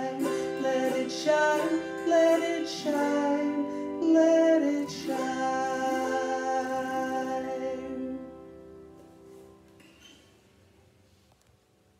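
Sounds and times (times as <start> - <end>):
strummed autoharp: 0.0 - 8.4.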